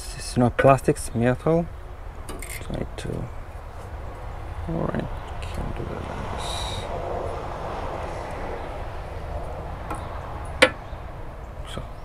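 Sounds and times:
distant engine rumble: 0.0 - 12.0
metal latch rattle: 2.2 - 2.7.

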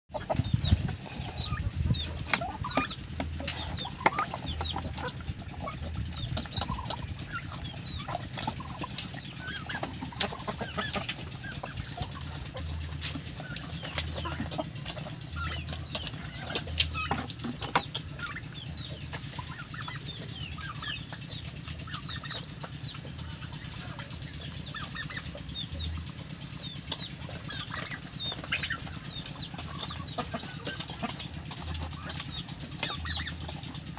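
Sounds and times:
birds pecking at feed: 0.1 - 33.9
chickens clucking: 0.1 - 33.9.

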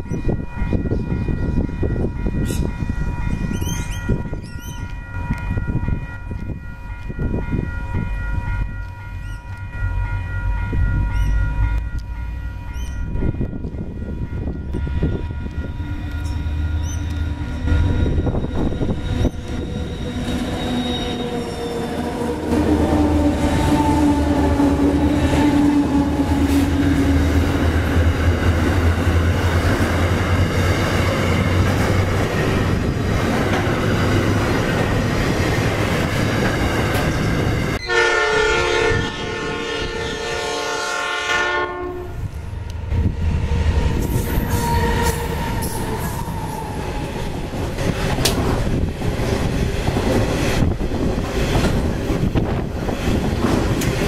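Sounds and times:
locomotive engine droning: 0.0 - 54.0
train wagons clattering on rails: 12.7 - 37.8, 43.8 - 54.0
locomotive horn: 15.0 - 28.0, 37.1 - 42.4.

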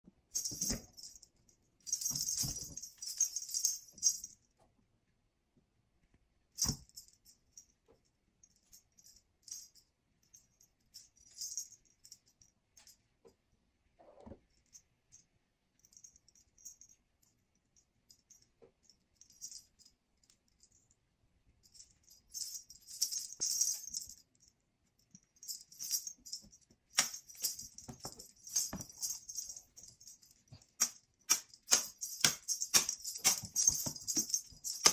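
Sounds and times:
cat toy jingling: 1.9 - 4.3, 25.4 - 34.9.

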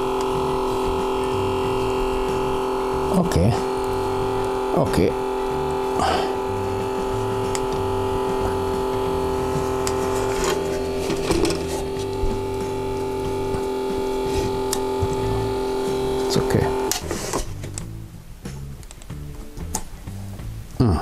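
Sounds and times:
background music with bass line: 0.0 - 21.0.

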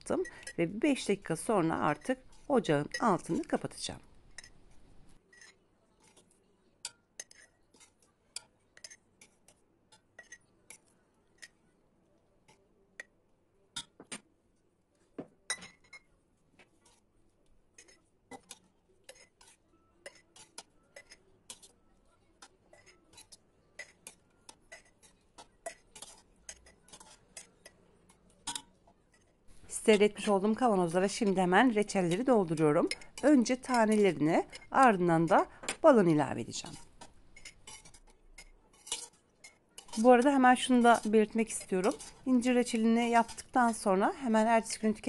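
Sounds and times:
metal ladle clinking on pot and jars: 0.0 - 4.6, 15.5 - 16.1, 22.4 - 27.8, 28.4 - 45.0.

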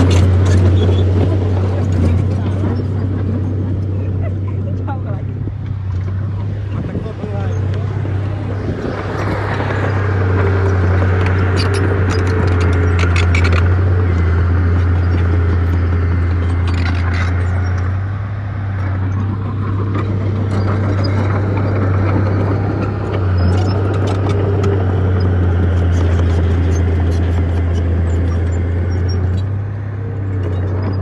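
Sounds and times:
bulldozer diesel engine running: 0.0 - 31.0.

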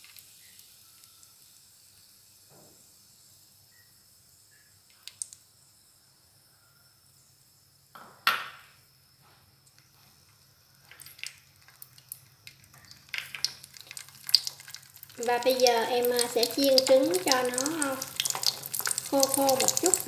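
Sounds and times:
egg frying in a pan: 0.0 - 3.6, 10.2 - 20.0.

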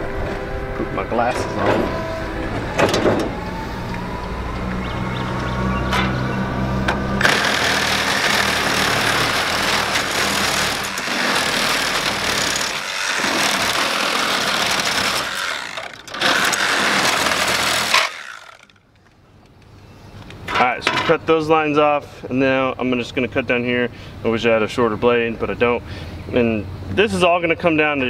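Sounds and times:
reciprocating saw cutting copper pipe: 7.2 - 18.8.

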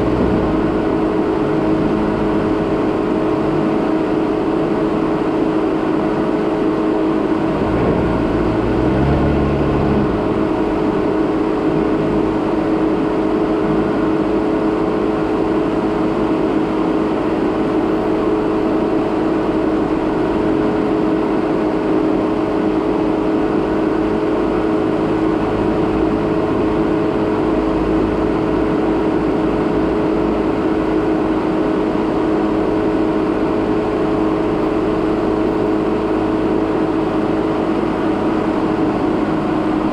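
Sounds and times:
low rumble: 0.0 - 3.8, 7.5 - 12.5
car engine and road noise: 0.0 - 39.9.

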